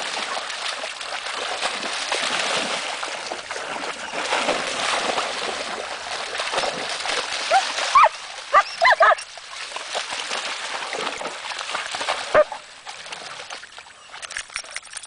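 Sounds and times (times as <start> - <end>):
dogs splashing through water: 0.0 - 15.0
dog barking: 7.9 - 9.2, 12.3 - 12.6.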